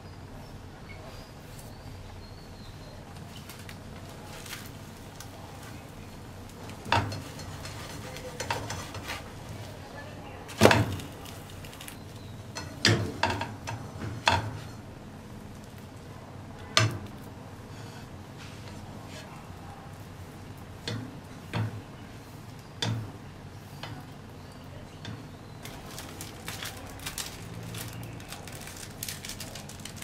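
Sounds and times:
spatula scraping frying pan: 6.8s - 9.5s.

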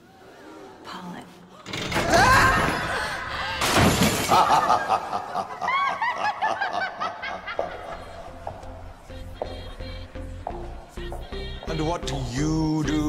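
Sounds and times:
cackling laughter: 4.2s - 8.3s.

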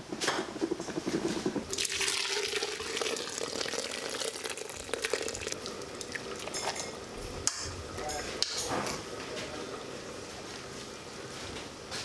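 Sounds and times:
liquid pouring into glass jug: 1.5s - 8.0s.

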